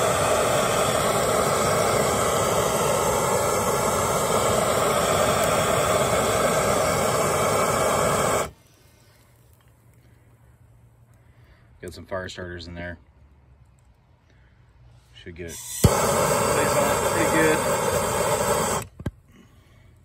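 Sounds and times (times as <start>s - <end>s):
gas torch hissing: 0.0s - 9.5s, 15.4s - 19.4s.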